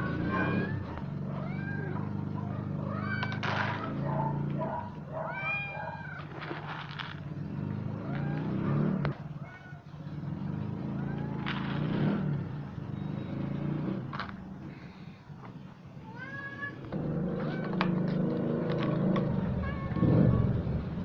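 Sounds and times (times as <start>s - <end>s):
cats meowing: 0.0s - 6.7s, 8.0s - 10.0s, 10.9s - 11.7s, 16.0s - 20.9s.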